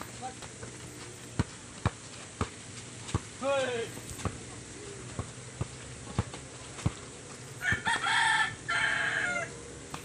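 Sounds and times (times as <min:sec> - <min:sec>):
basketball bouncing on dirt: 0:00.0 - 0:08.3
rooster crowing: 0:07.6 - 0:09.6.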